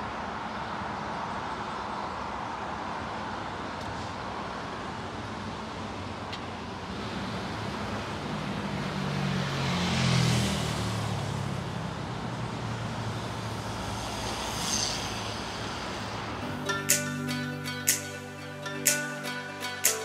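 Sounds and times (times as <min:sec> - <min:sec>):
expressway traffic: 0:00.0 - 0:20.0
vehicle passing: 0:06.8 - 0:18.6.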